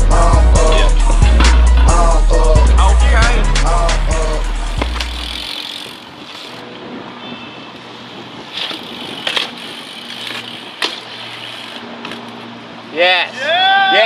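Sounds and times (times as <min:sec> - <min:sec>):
bike tyres on concrete: 0:03.9 - 0:14.0
bike landing knocks: 0:04.7 - 0:05.3, 0:10.2 - 0:11.2.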